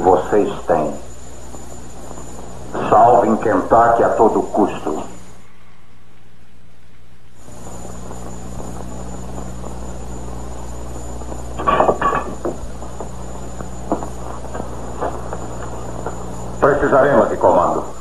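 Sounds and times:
background hiss: 0:00.0 - 0:18.0
low electrical hum: 0:00.0 - 0:18.0.

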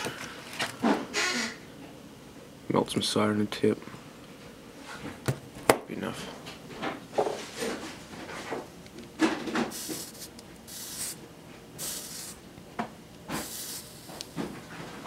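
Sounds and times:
soldering iron hissing on wet sponge: 0:09.8 - 0:11.2, 0:13.4 - 0:14.4.

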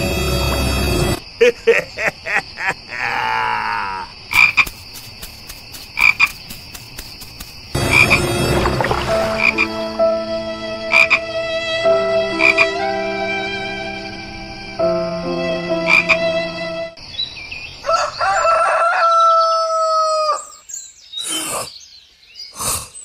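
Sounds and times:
frogs croaking: 0:01.2 - 0:21.9.

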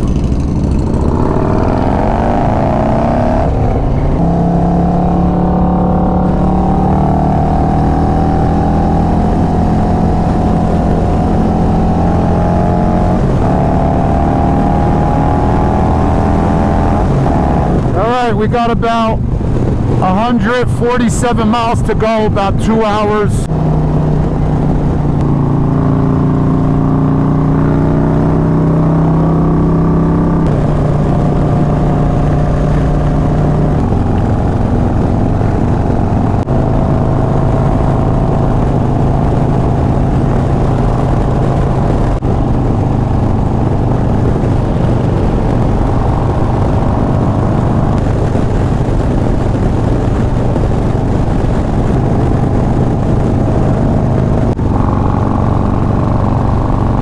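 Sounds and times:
motorcycle engine at highway speed: 0:00.0 - 0:57.0.

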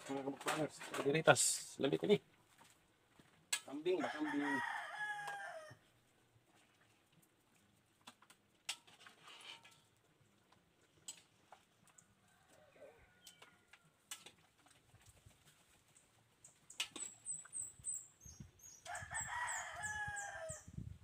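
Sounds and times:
rooster crowing: 0:04.0 - 0:05.8, 0:12.2 - 0:13.8, 0:18.9 - 0:20.7
high bird chirps: 0:16.7 - 0:19.0.

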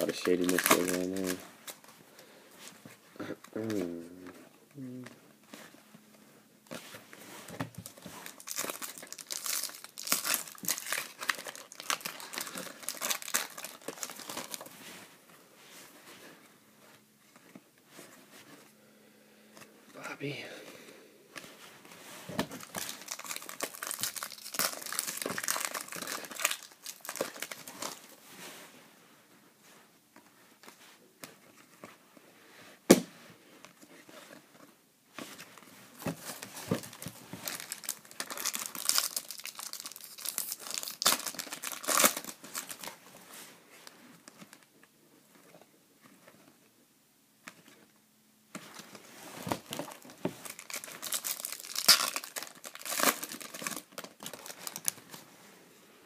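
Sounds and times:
foil wrappers crinkling and tearing: 0:00.0 - 0:01.9, 0:07.8 - 0:14.8, 0:22.4 - 0:28.2, 0:36.0 - 0:43.0, 0:48.7 - 0:55.2.

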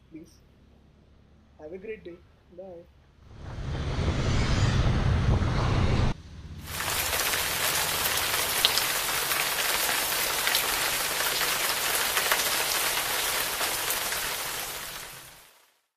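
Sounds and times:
rain on hard surfaces: 0:06.6 - 0:15.9.

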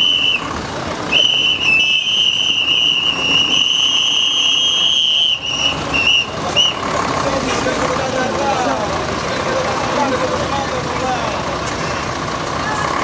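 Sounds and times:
long whistle blast: 0:00.0 - 0:00.5, 0:01.1 - 0:06.8
crowd noise: 0:00.0 - 0:13.0.

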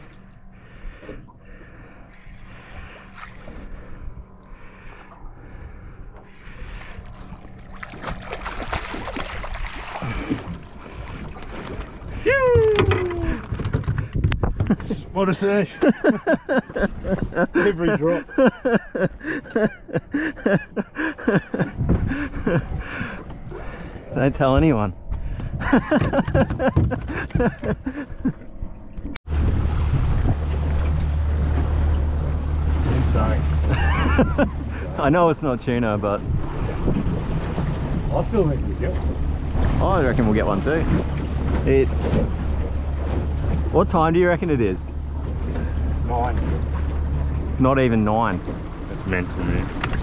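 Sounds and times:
water splashing: 0:00.0 - 0:13.6
wind buffeting microphone: 0:02.0 - 0:15.2, 0:21.4 - 0:47.6
person shouting: 0:12.2 - 0:13.4.

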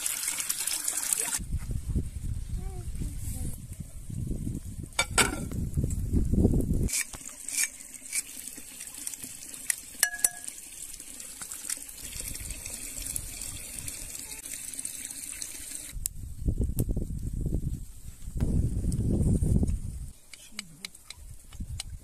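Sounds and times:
running water: 0:00.0 - 0:01.4, 0:06.9 - 0:16.0
sharp clicks and taps: 0:20.3 - 0:22.0.

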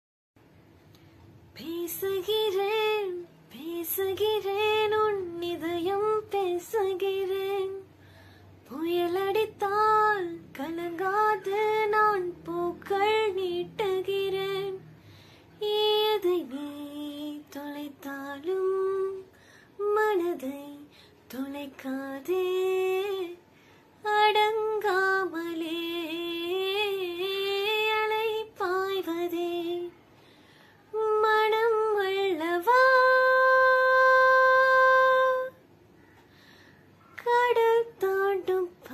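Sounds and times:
woman singing unaccompanied: 0:01.5 - 0:08.0, 0:08.6 - 0:14.9, 0:15.6 - 0:30.1, 0:30.9 - 0:35.6, 0:37.0 - 0:38.9
singer breathing: 0:07.9 - 0:08.6, 0:14.9 - 0:15.6, 0:19.3 - 0:19.8, 0:30.1 - 0:30.9, 0:35.9 - 0:37.0.

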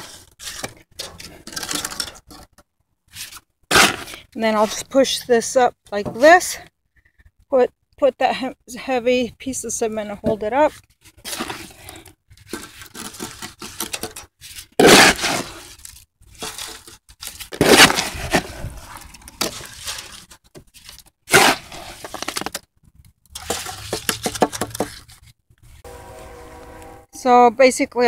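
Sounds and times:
concrete scraping and crunching: 0:00.0 - 0:06.5, 0:10.2 - 0:27.0.

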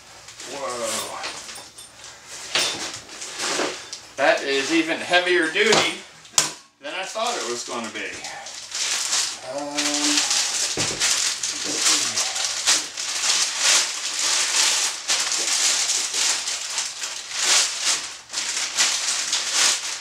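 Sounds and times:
plastic packaging crinkling: 0:07.0 - 0:20.0.

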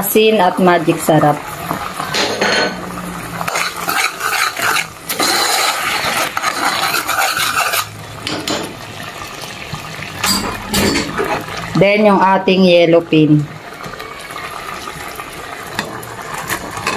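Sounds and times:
liquid bubbling: 0:02.8 - 0:11.9
metal spoon scraping a pot: 0:03.4 - 0:08.6.

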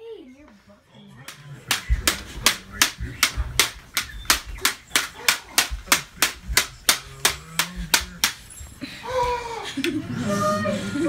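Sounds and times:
toy lightsabers clacking: 0:01.3 - 0:08.6.

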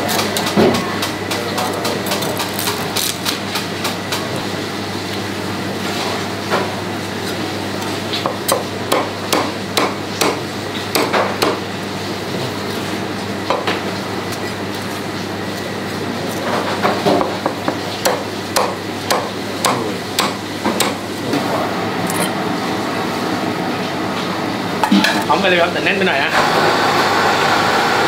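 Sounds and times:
cleaver chopping on plastic board: 0:08.3 - 0:11.6, 0:16.8 - 0:21.0.

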